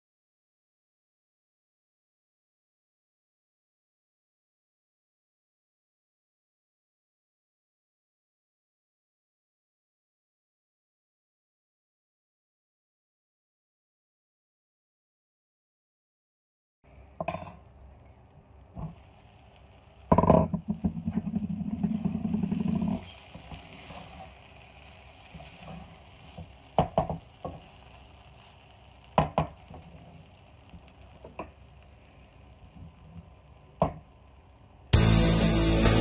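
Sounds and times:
faint steady sizzle: 0:16.8 - 0:36.0.

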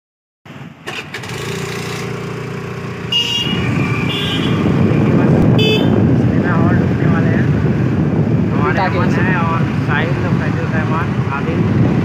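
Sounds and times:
engine and road rumble: 0:00.5 - 0:12.0
vehicle horn toots: 0:03.0 - 0:04.8, 0:05.5 - 0:06.0.

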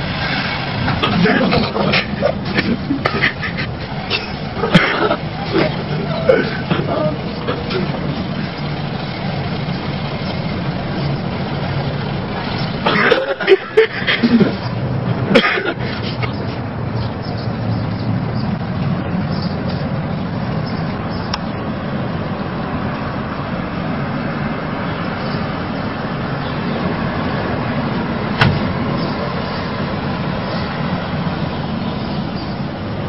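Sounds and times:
low rumble of street traffic: 0:00.0 - 0:33.0
sharp knock: 0:28.4 - 0:28.7.

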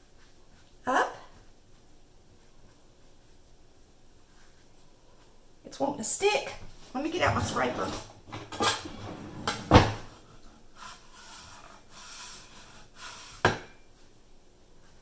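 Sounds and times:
drawer opening: 0:07.1 - 0:10.2
utensils clattering: 0:07.2 - 0:10.0.

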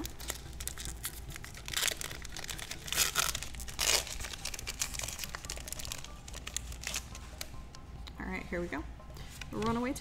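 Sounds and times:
foil wrapper crinkling: 0:00.0 - 0:07.5
foil wrapper ripping: 0:00.0 - 0:07.5.

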